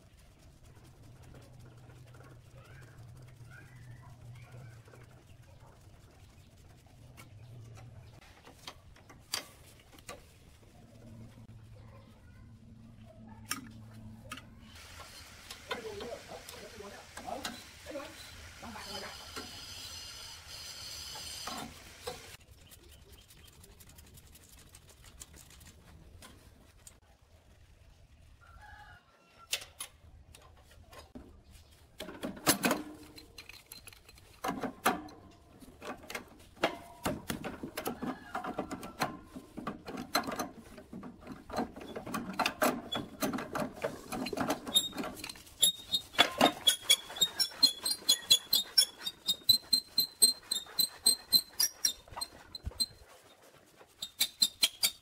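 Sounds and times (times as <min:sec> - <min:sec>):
metal hand tools clinking and scraping: 0:32.5 - 0:35.3.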